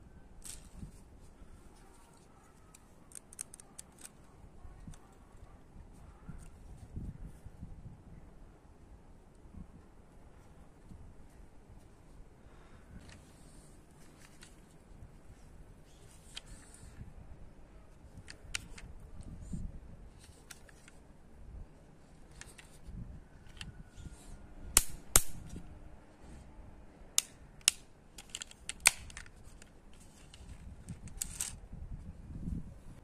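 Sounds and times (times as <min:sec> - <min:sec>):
plastic toy clicks and snaps: 0:02.7 - 0:04.2, 0:18.2 - 0:18.9, 0:24.8 - 0:25.5, 0:27.2 - 0:29.7.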